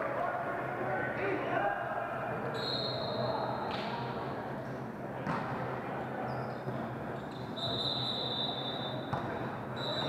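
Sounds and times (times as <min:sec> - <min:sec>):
voices echoing in gym: 0:00.0 - 0:10.0
high squeal: 0:09.8 - 0:10.0.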